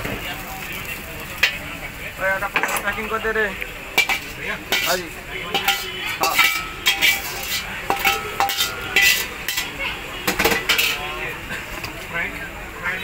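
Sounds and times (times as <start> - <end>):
metal utensils clinking: 3.9 - 12.0.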